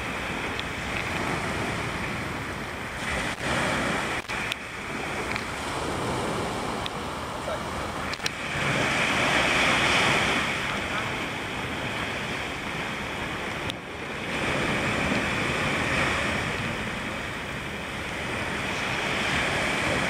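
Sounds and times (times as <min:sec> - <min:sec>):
surf washing on beach: 0:00.0 - 0:20.0
wind buffeting microphone: 0:00.0 - 0:20.0.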